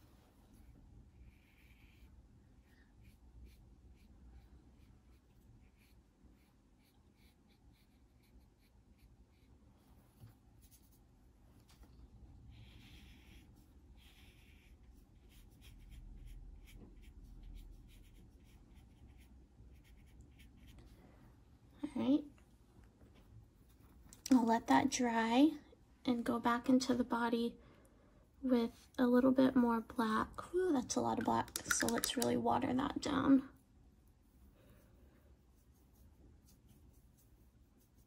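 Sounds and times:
brush swishing across paper: 0.0 - 21.0, 34.0 - 38.0
brush tapping in plastic palette: 31.0 - 32.8.

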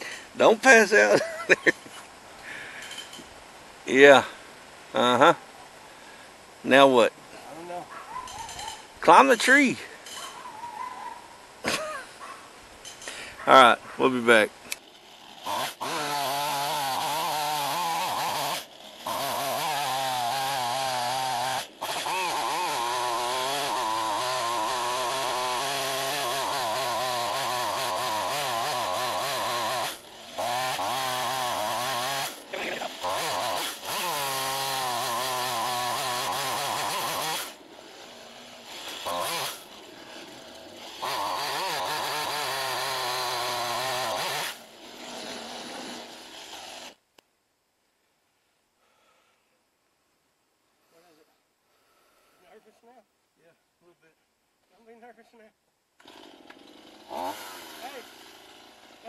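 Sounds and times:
chainsaw cutting tree trunk: 14.7 - 47.0, 56.0 - 59.0.

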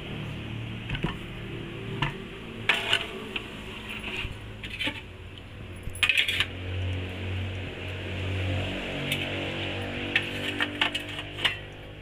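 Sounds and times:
metal stove parts clinking: 2.0 - 3.1, 5.8 - 6.5, 10.1 - 11.9.

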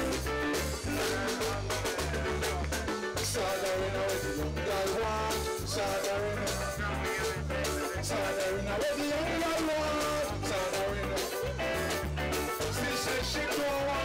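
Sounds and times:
deep bass line: 0.0 - 14.0
keyboards: 0.0 - 14.0
reggae band playing: 0.0 - 14.0.

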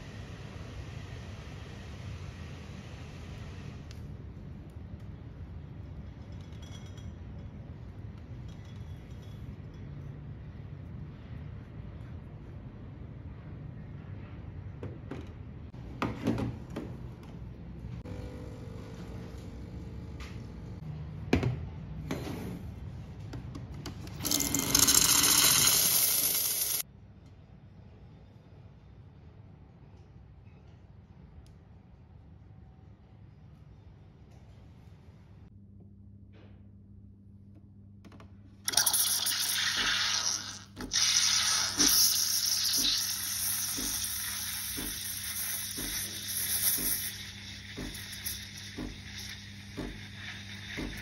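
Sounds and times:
steam wand hissing frothing milk: 38.7 - 51.0.

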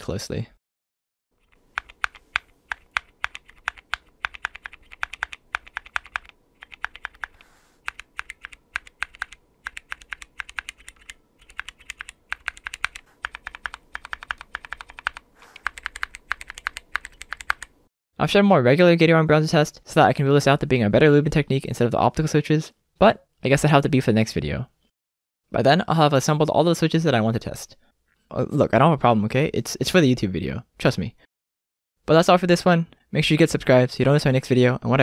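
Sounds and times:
mechanical keyboard typing: 1.4 - 17.7.

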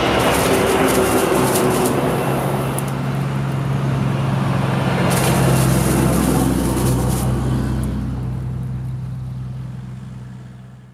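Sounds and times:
heavy truck engine drone: 0.0 - 10.9.

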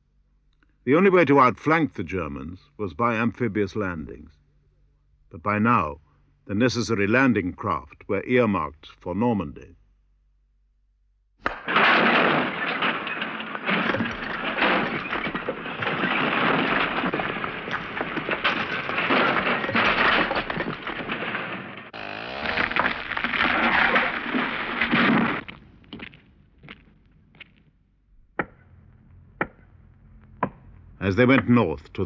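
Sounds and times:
isolated sharp cracks: 11.4 - 27.7.

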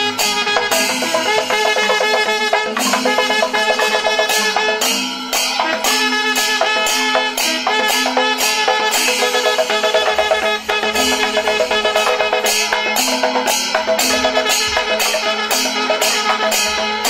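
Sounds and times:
sharp percussion strikes: 0.0 - 17.0
brass horns sustained notes: 5.6 - 13.1.

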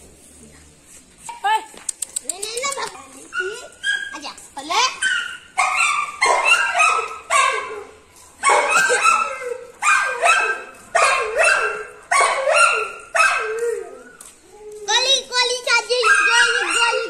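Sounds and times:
puppy barking: 3.4 - 4.2, 4.9 - 13.8, 15.9 - 17.0.

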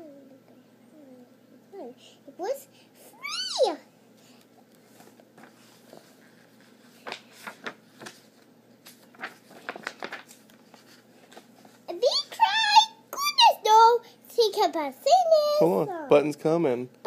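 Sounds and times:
picture book handling: 4.3 - 11.9.

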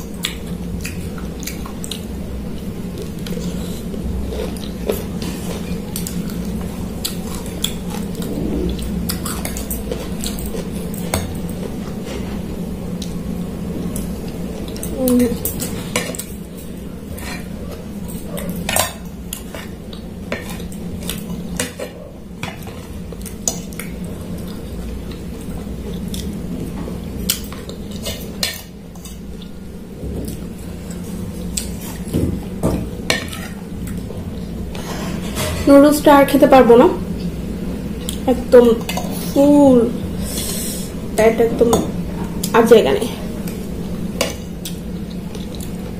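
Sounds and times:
low hum: 7.4 - 11.8.

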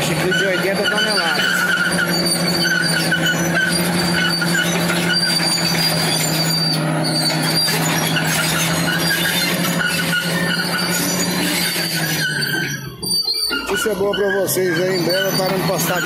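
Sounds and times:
bulldozer diesel engine drone: 0.0 - 16.0
steel tracks squealing: 0.0 - 16.0.

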